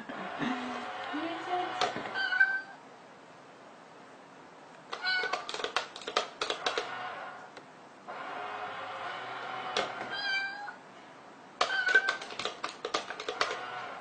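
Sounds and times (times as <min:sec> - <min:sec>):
cat meowing: 0:02.1 - 0:02.8, 0:04.9 - 0:05.5, 0:10.1 - 0:10.8, 0:11.6 - 0:12.3.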